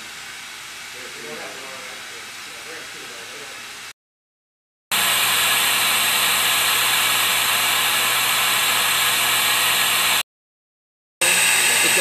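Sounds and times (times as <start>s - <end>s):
vacuum pump hissing: 4.9s - 10.2s, 11.2s - 12.0s.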